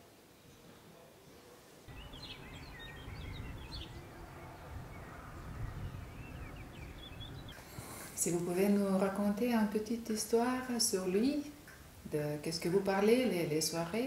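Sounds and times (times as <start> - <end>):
small birds chirping: 1.9 - 8.7.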